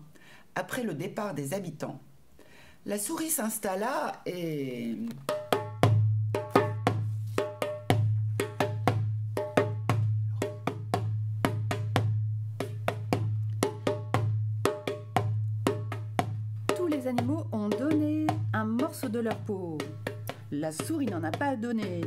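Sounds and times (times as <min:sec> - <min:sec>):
hand drum beaten rhythmically: 0:05.2 - 0:22.0.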